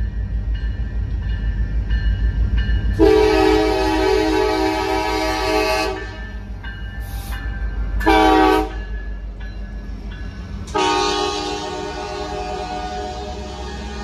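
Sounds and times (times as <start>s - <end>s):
train rumbling past: 0.0s - 14.0s
locomotive air horn blasts: 3.0s - 6.2s, 8.0s - 8.8s, 10.7s - 14.0s.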